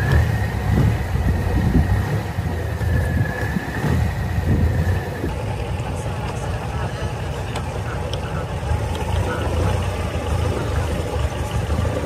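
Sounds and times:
motorboat engine rumbling: 0.0 - 12.0.

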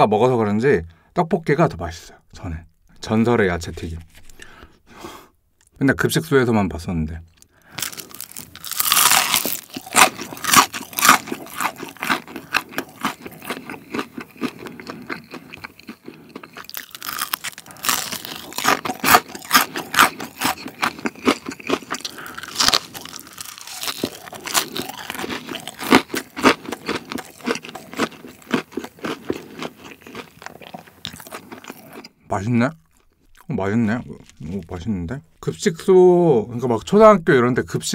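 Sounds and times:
crunching and chewing: 3.7 - 4.6, 7.3 - 35.5.

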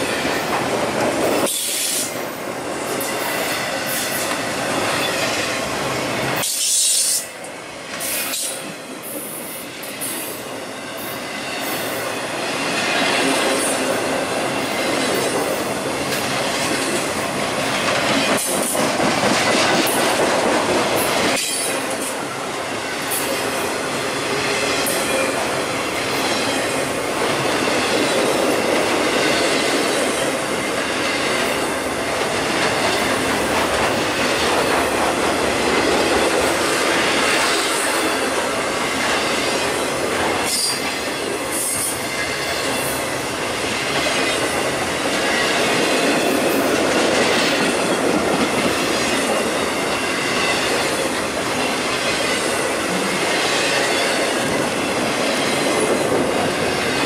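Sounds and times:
steel wheels rolling on rail: 0.0 - 57.0.

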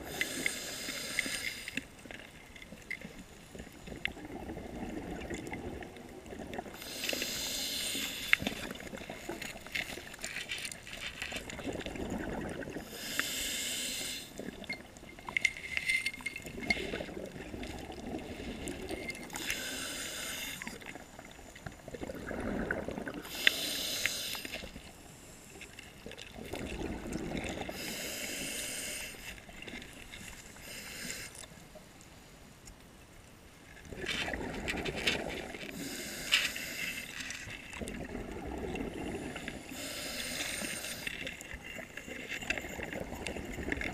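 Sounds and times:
regulator inhalation hiss: 0.0 - 1.8, 6.8 - 8.6, 12.9 - 14.4, 19.3 - 20.8, 23.3 - 25.5, 27.7 - 29.3, 30.6 - 31.4, 35.7 - 37.4, 39.6 - 41.3
exhalation bubbling underwater: 11.5 - 12.9, 21.9 - 23.4, 26.4 - 27.8, 33.9 - 35.6, 37.8 - 39.6.

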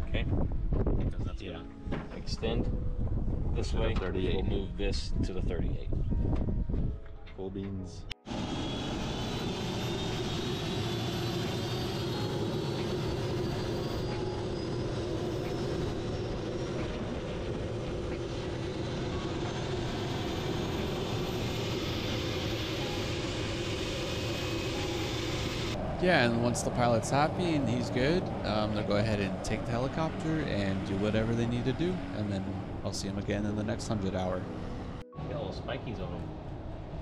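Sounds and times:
helicopter engine and rotor: 8.2 - 32.9
high turbine whine: 8.2 - 37.0.

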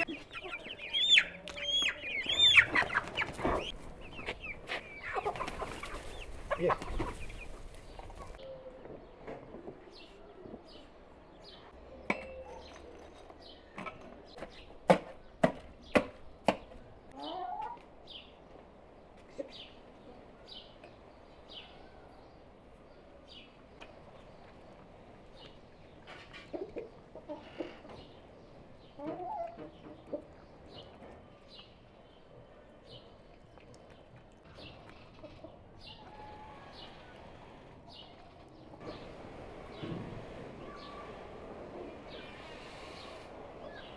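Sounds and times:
chickens clucking: 0.0 - 9.8, 16.5 - 17.9, 25.9 - 31.2, 34.3 - 40.1.

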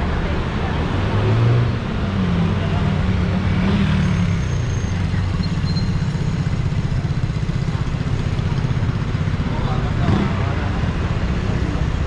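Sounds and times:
motorcycle engines in traffic: 0.0 - 12.0.

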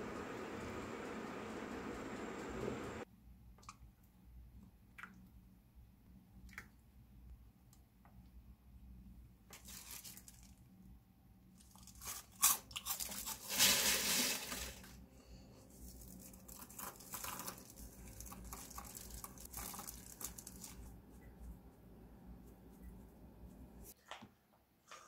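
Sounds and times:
plastic crinkling: 9.5 - 10.6, 15.8 - 20.9
croutons crunching: 11.6 - 14.6, 15.8 - 20.9.

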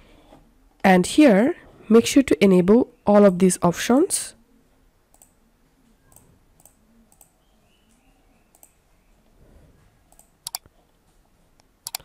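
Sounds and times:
computer mouse clicking: 5.1 - 5.4, 6.1 - 8.8, 10.1 - 10.7, 11.6 - 12.0.

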